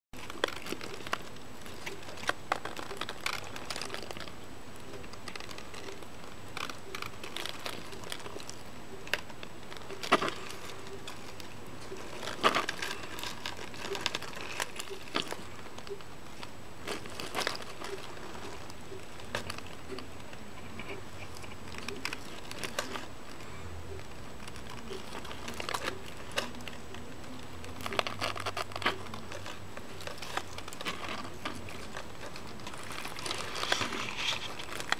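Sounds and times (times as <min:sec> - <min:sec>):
tortoises scraping toy car: 0:24.1 - 0:34.9.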